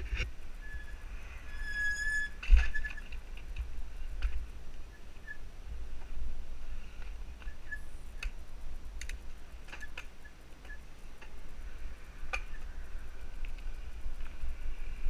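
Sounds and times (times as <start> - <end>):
bike clicks and ticks: 6.9 - 15.0.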